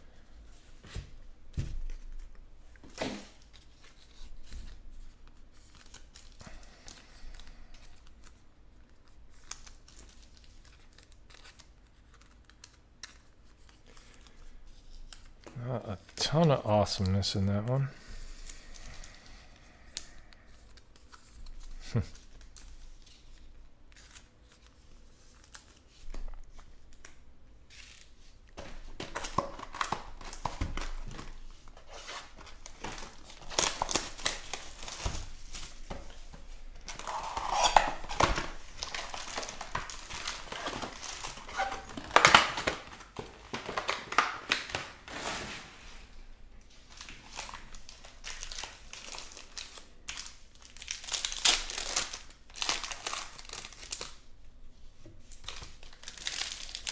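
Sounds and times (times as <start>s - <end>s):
cardboard and foil wrappers rustling: 27.7s - 54.2s, 55.2s - 56.9s.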